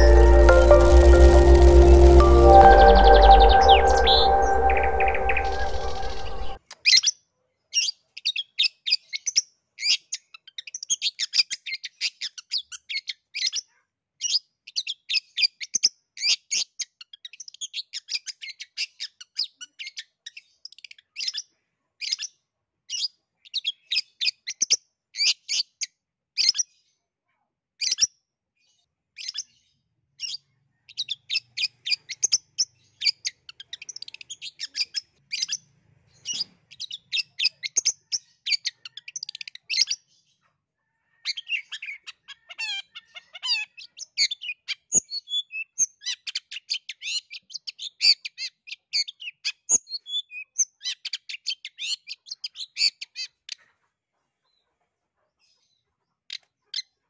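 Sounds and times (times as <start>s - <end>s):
bird chirping and twittering: 0.0s - 6.6s.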